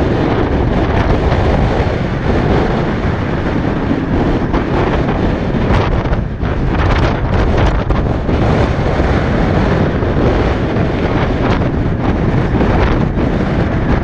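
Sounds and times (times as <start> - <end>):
road and engine noise: 0.0 - 14.0
wind buffeting microphone: 0.0 - 14.0.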